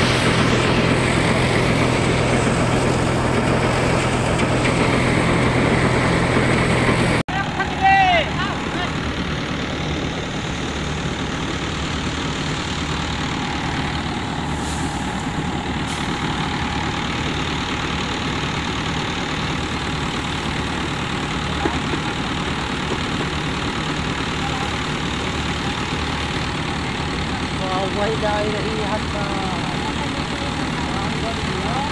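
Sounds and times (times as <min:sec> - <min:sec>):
tractor engine and thresher running: 0:00.0 - 0:31.9.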